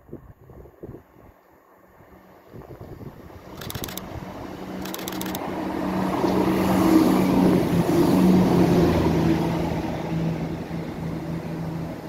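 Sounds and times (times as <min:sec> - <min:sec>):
train engine humming: 0:01.8 - 0:12.0
train wheel and rail noise: 0:03.2 - 0:12.0.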